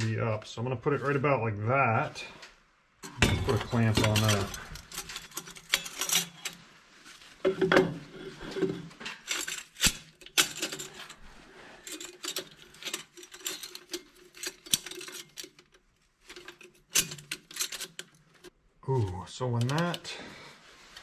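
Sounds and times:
metal clinking and rattling: 0:03.0 - 0:06.7, 0:07.4 - 0:18.6.

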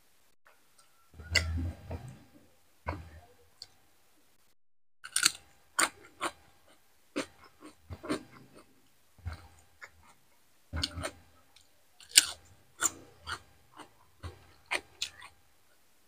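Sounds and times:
crunchy chewing of cucumber: 0:05.0 - 0:10.2, 0:10.8 - 0:11.2, 0:12.0 - 0:15.4.

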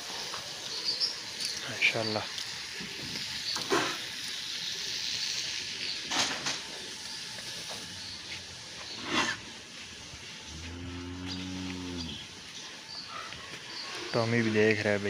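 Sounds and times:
steady high hiss: 0:00.0 - 0:15.0
bull snorting: 0:09.0 - 0:09.4.

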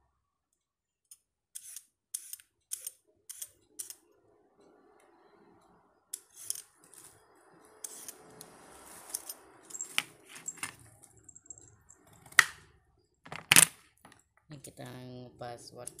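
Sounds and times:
scattered clicks: 0:01.1 - 0:04.1.

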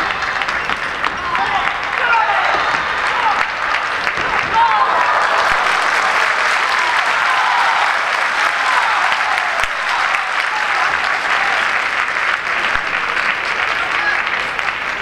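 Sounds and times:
crowd applause: 0:00.0 - 0:15.0.

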